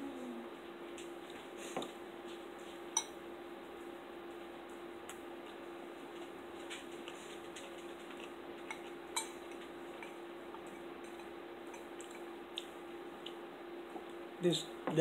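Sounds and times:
steady low hum: 0.0 - 15.0
spoons clinking against bowls: 8.6 - 12.3.

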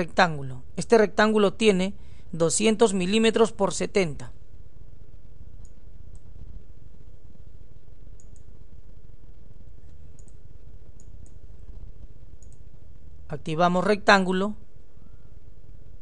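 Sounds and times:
low background hum: 0.0 - 16.0
computer mouse clicking: 5.6 - 6.3, 8.2 - 8.5, 9.8 - 10.4, 11.0 - 11.4, 12.4 - 12.7.

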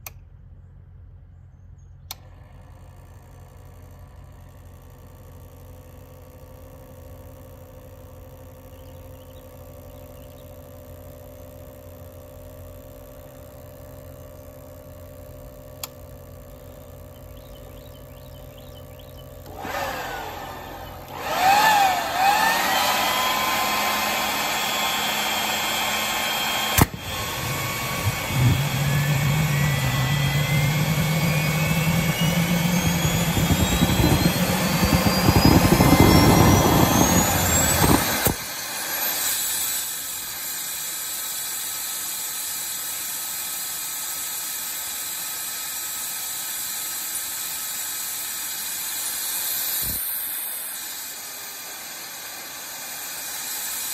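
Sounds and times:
turbo whine rising: 6.0 - 53.9
low hum: 12.6 - 39.1
leaf blower blowing: 15.0 - 53.9
sharp click: 26.7 - 27.0.

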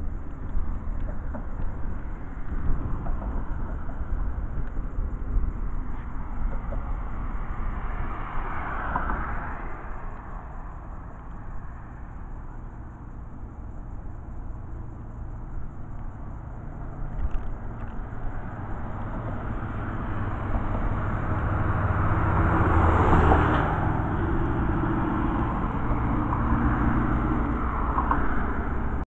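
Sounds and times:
car passing: 0.0 - 29.0
road traffic passing: 0.0 - 29.0
heavy truck passing: 16.5 - 29.0.

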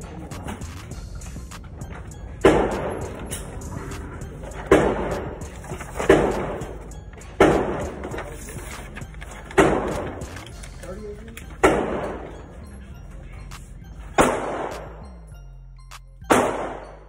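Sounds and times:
gunshots echoing indoors: 2.4 - 3.4, 4.6 - 6.7, 7.4 - 8.0, 11.6 - 12.5, 14.2 - 15.0, 16.3 - 17.0.

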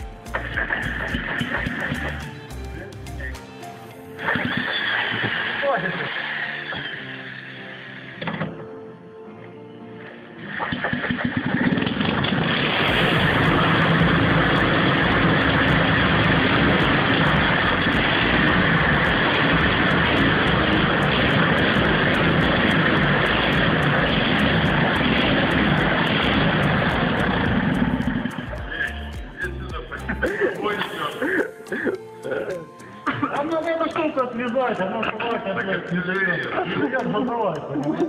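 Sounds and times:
rotary engine running: 12.8 - 28.6
fast regular ticking: 12.8 - 38.0.

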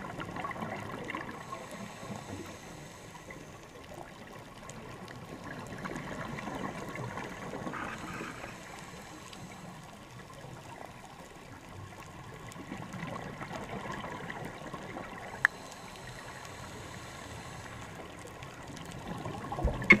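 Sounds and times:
diver's exhaled bubbles gurgling: 0.0 - 2.3, 3.9 - 9.2, 12.1 - 15.4, 18.6 - 20.0.

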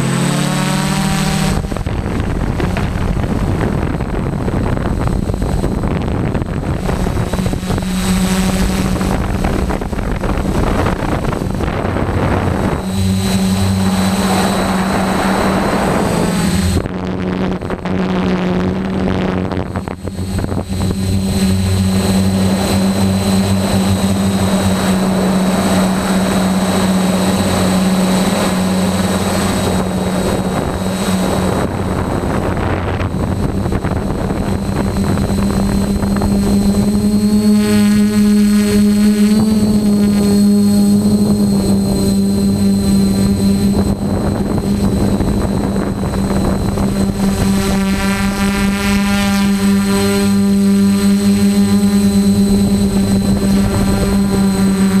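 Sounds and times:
drone motors humming: 0.0 - 55.0
wind on microphone: 0.0 - 55.0.

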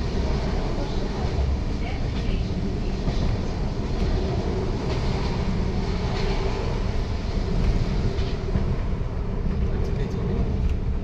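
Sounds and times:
train rumbling from inside carriage: 0.0 - 11.0.

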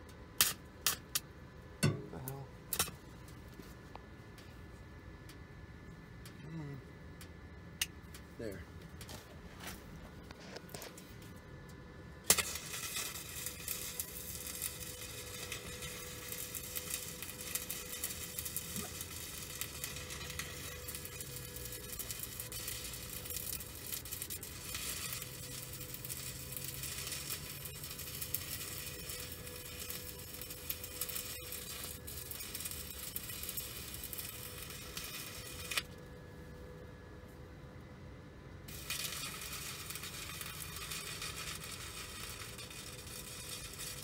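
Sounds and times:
welding arc crackling: 0.4 - 3.6, 6.2 - 36.0, 38.7 - 44.0.

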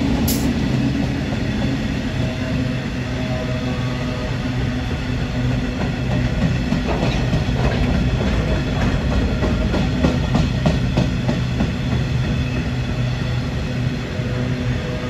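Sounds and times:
freight train rumbling past: 0.0 - 15.0.

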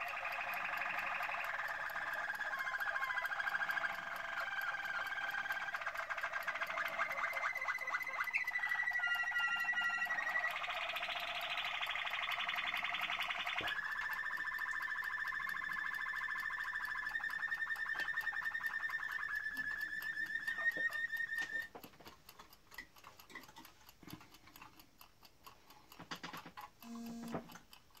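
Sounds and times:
soft chirps: 0.0 - 21.7
canary trilling: 0.0 - 21.8
small clicks: 0.0 - 28.0.

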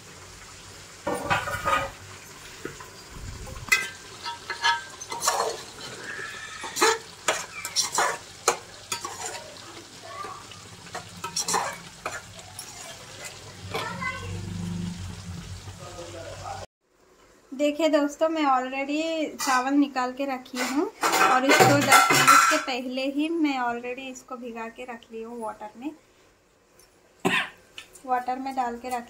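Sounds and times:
frying sizzle: 0.0 - 29.0
metal spoon scraping a pot: 3.7 - 9.6, 10.9 - 13.6.

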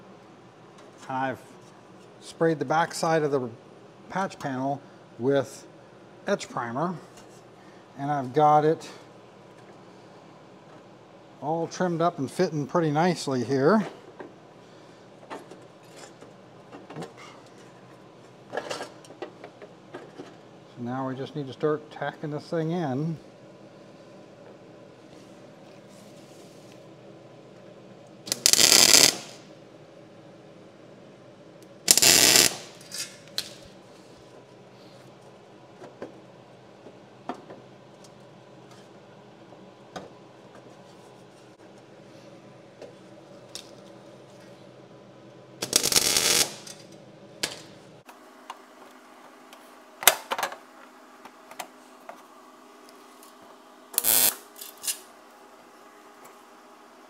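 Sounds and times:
welder arc crackling: 28.3 - 29.5, 31.9 - 32.8, 45.6 - 46.8, 54.0 - 54.7.

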